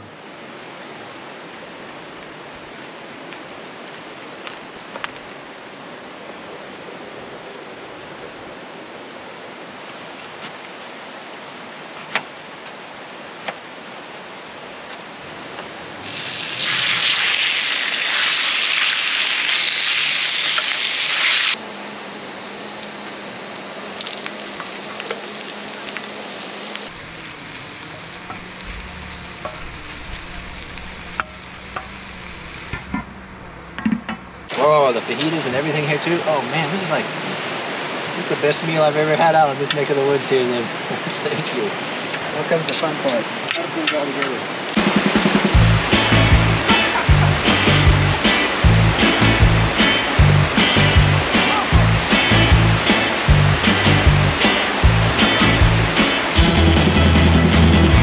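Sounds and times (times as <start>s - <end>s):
food sizzling on a griddle: 16.0s - 21.6s, 24.6s - 33.0s.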